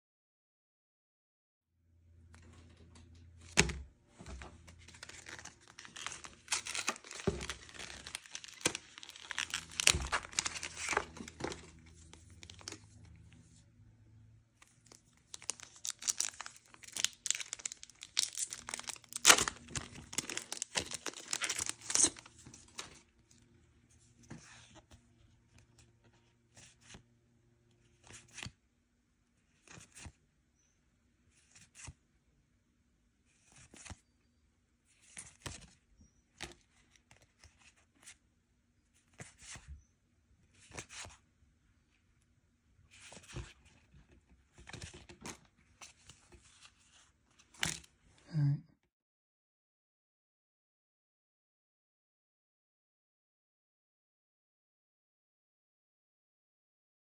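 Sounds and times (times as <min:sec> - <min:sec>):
cards clicking and rustling: 0:03.4 - 0:12.8, 0:14.7 - 0:23.0
foil wrappers tearing and crinkling: 0:05.0 - 0:11.6, 0:15.3 - 0:22.3.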